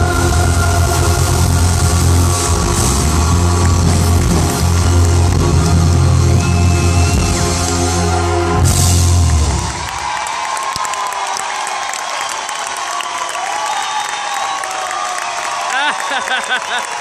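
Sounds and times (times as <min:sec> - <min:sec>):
live band playing: 0:00.0 - 0:10.1.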